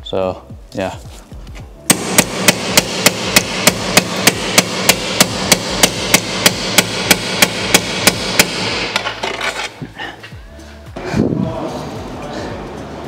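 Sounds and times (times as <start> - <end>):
hammer striking metal: 1.9 - 9.6.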